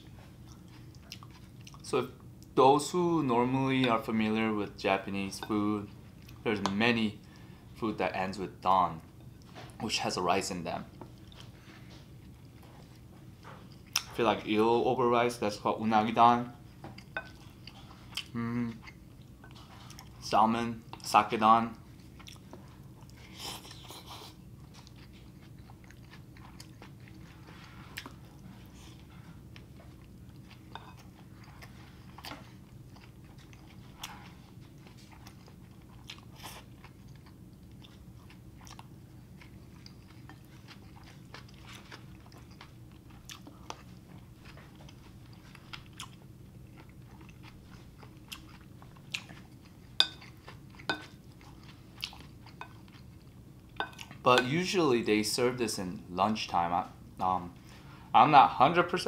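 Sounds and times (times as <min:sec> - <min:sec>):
chewing and wet mouth sounds: 0:00.0 - 0:02.6, 0:05.8 - 0:07.5, 0:10.8 - 0:14.5, 0:16.7 - 0:54.7
faint room hum: 0:00.0 - 0:59.0.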